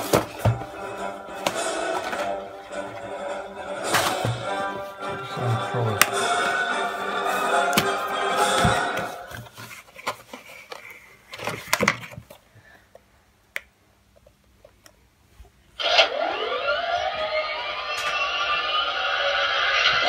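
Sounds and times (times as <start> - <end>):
background music: 0.0 - 9.5.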